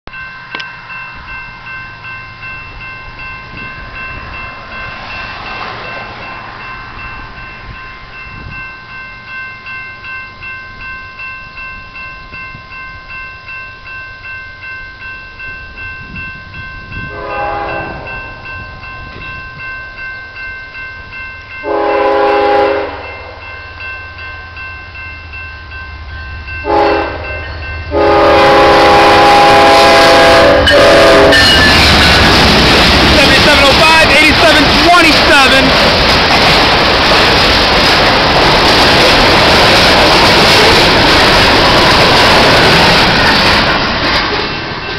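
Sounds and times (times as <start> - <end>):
grade-crossing bell ringing: 0.1 - 44.9
locomotive air horn blasts: 17.1 - 18.1, 21.6 - 23.1, 26.6 - 31.6.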